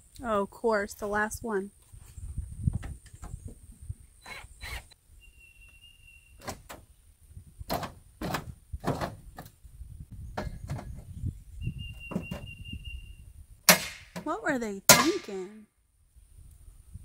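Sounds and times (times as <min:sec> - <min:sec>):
faint high whistle-like tone: 0:05.1 - 0:06.4, 0:11.6 - 0:13.3.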